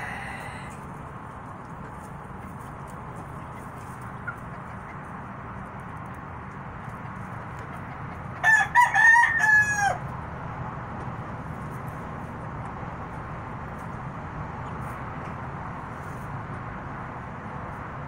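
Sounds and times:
rooster crowing: 0:00.0 - 0:00.8, 0:08.4 - 0:10.1
steady low hum: 0:00.0 - 0:08.4, 0:10.0 - 0:18.0.

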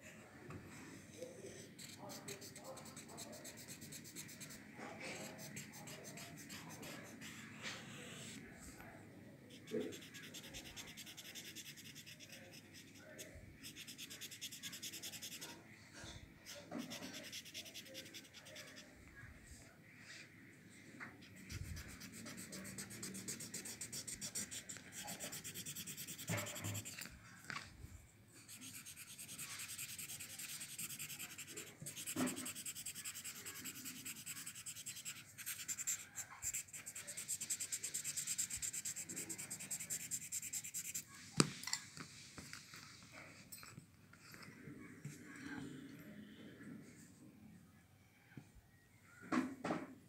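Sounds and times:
blending stump rubbing paper: 0:28.5 - 0:41.0.

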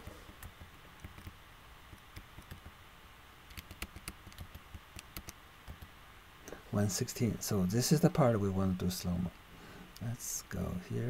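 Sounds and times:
keyboard key clicks: 0:03.5 - 0:05.9.

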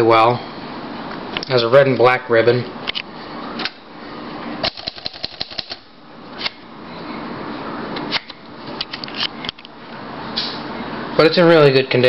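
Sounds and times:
typewriter keys clacking: 0:04.6 - 0:05.8.

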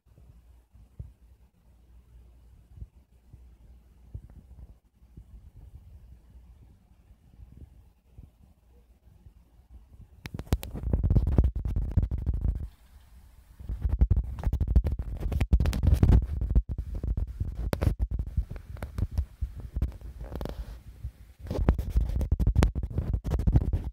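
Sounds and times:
phone microphone rubbing on clothing: 0:10.0 - 0:23.9.

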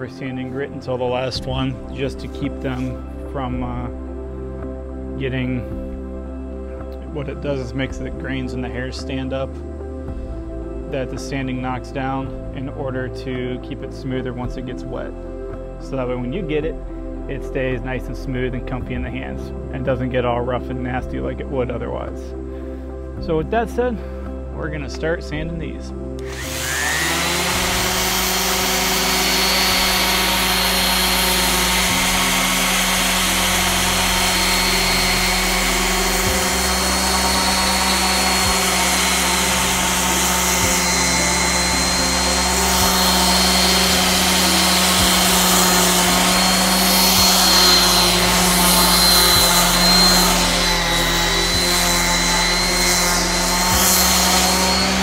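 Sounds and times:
orbital sander on wood: 0:25.5 - 0:55.0.

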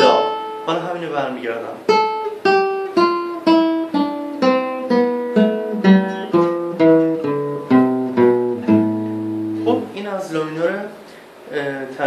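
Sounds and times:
classical guitar plucked notes: 0:00.0 - 0:01.0, 0:01.6 - 0:10.0.

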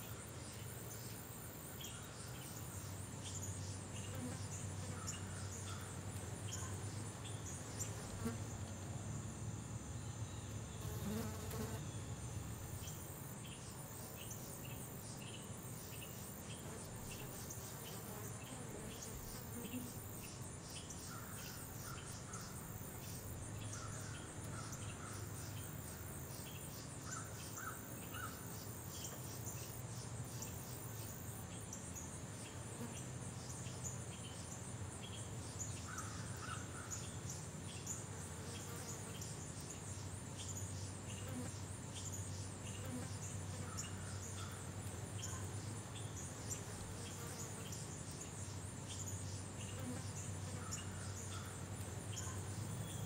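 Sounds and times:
insect chirps: 0:00.0 - 0:53.0
insects trilling: 0:00.0 - 0:53.0.

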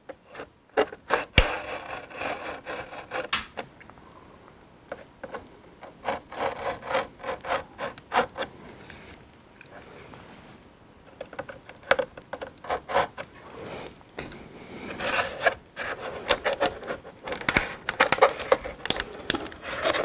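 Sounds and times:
cardboard scraping and rubbing: 0:00.3 - 0:03.3, 0:05.9 - 0:09.2, 0:12.4 - 0:20.0
utility knife slitting tape: 0:01.1 - 0:03.5.

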